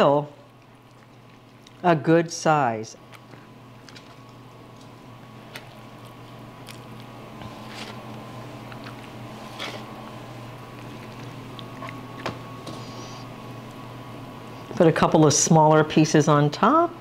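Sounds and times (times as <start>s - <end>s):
steady hum: 0.0s - 17.0s
hands squishing food: 3.0s - 12.3s.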